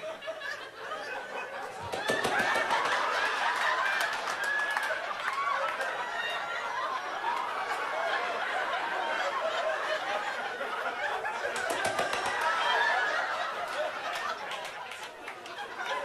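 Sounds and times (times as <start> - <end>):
audience laughing: 0.0 - 16.0
people clapping: 1.8 - 9.4, 11.0 - 16.0.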